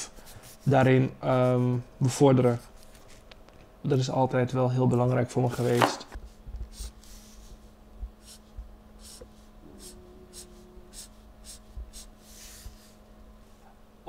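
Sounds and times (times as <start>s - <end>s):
marker pen scratching on paper: 6.6s - 7.6s, 8.2s - 13.0s.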